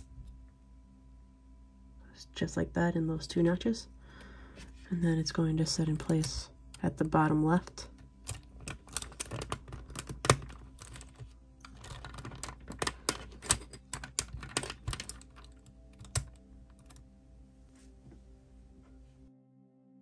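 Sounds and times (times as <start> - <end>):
plastic puzzle pieces clicking: 8.3 - 17.0.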